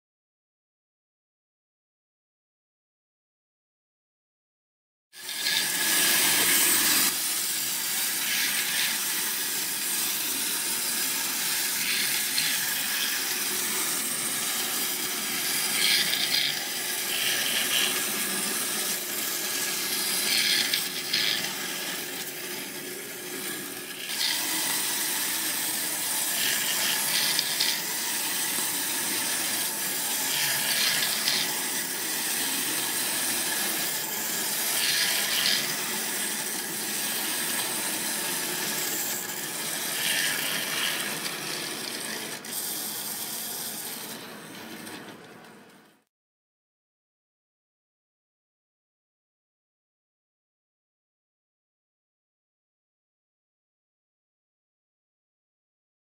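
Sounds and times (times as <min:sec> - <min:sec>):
toy train wheels rattling: 0:05.2 - 0:45.6
clockwork gears whirring: 0:05.2 - 0:46.0.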